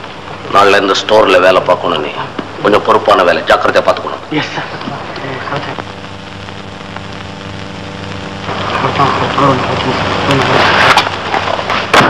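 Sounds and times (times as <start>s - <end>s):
low hum: 4.7s - 12.0s
crackling clicks: 4.8s - 12.0s.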